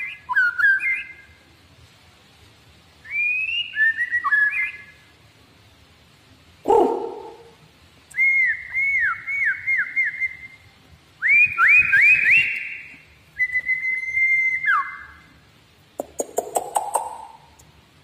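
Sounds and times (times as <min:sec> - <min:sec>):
bird singing whistles: 0:00.0 - 0:01.4, 0:03.0 - 0:05.1, 0:08.1 - 0:15.3.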